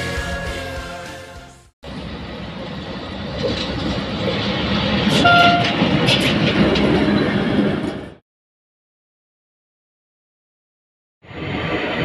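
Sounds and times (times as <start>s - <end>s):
train passing on track: 0.0s - 8.2s, 11.2s - 12.0s
brief high tone: 5.2s - 5.8s.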